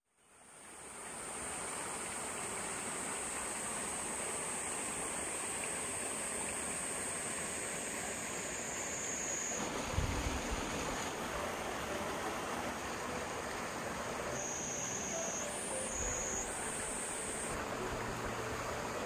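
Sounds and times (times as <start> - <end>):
stream rushing over rocks: 0.3 - 19.0
high-pitched whine: 4.2 - 19.0.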